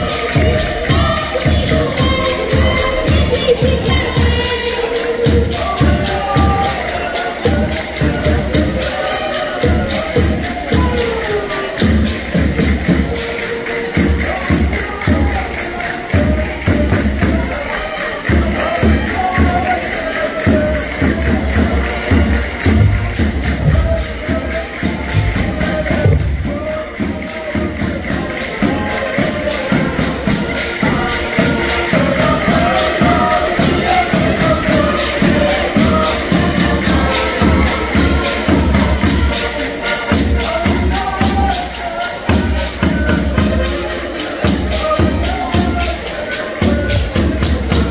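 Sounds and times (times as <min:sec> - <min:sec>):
bass drum beat: 0:00.0 - 0:15.5
folk music melody: 0:00.0 - 0:47.9
low drum beats: 0:00.0 - 0:47.9
percussion ticking: 0:00.0 - 0:47.9.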